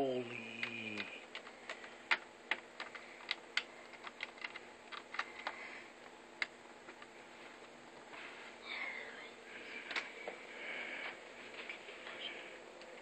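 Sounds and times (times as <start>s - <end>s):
laptop keyboard clicks and taps: 0.6s - 5.6s.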